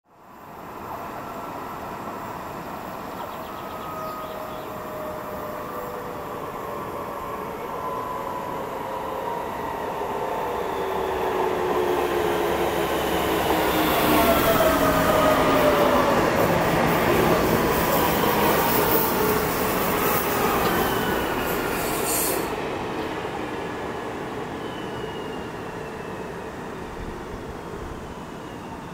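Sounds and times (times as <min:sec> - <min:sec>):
electric train whining tones: 0:03.4 - 0:22.6.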